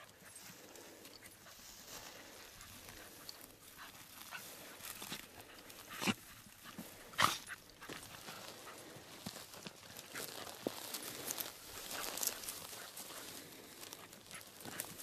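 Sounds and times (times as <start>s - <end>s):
footsteps through dry brush: 0.0s - 15.0s.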